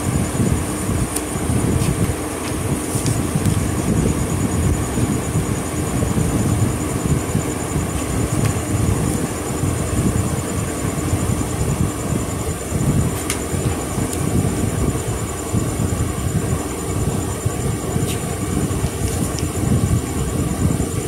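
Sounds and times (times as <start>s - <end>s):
faint hum: 0.0s - 21.0s
low rumbling background noise: 0.0s - 21.0s
paper pages rustling: 1.1s - 3.7s, 18.0s - 19.5s.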